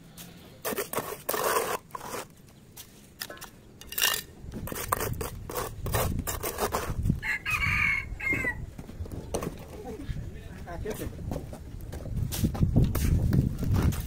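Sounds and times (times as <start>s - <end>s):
trowel scraping mortar: 0.2s - 7.2s.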